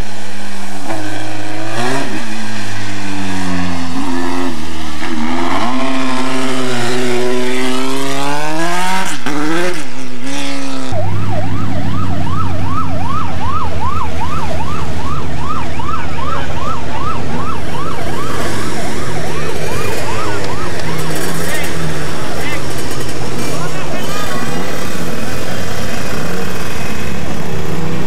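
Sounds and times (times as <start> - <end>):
rally car engine revving: 0.0 - 28.0
vehicle siren sweeping upward: 10.8 - 25.0.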